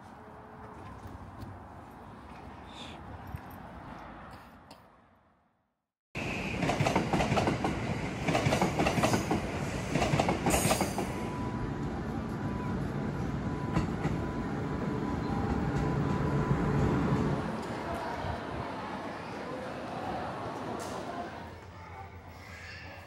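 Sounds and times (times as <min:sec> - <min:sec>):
train wheels clattering: 0:06.5 - 0:11.2.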